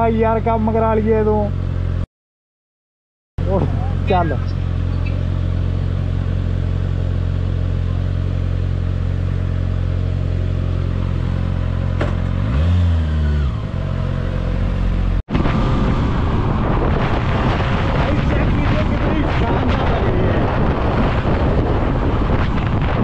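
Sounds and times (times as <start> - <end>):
motorcycle riding: 0.0 - 2.0, 3.4 - 23.0
wind rush: 15.3 - 23.0.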